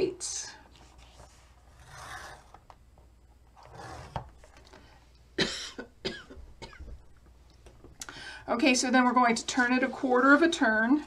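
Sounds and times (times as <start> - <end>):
scoring tool scratching cardstock: 1.1 - 2.6
person coughing: 5.4 - 7.0.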